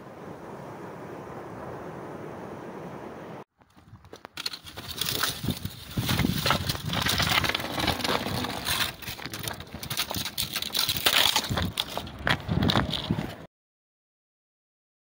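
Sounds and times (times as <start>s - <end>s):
dry branches crackling and scraping: 3.6s - 13.5s
footsteps: 3.6s - 13.5s.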